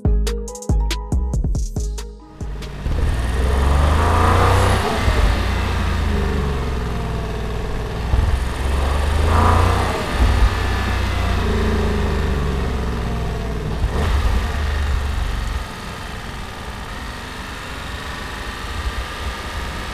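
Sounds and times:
car engine accelerating: 0:02.3 - 0:19.9.

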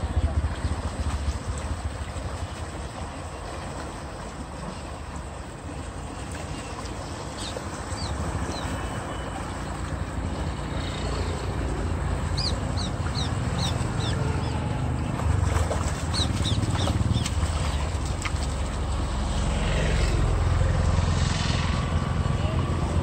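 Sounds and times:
water gushing from pipe: 0:00.0 - 0:23.0
fish splashing: 0:01.0 - 0:21.8
bird chirping: 0:07.3 - 0:09.2, 0:12.2 - 0:14.6, 0:16.1 - 0:17.3.

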